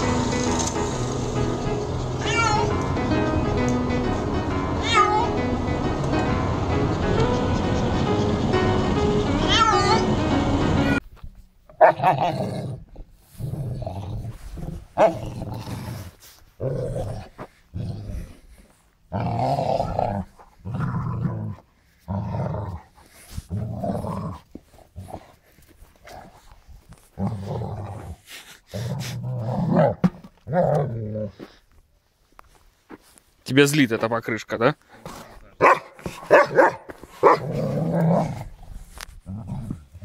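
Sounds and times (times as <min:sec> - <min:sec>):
dog growling: 0:19.1 - 0:25.3, 0:37.2 - 0:40.0.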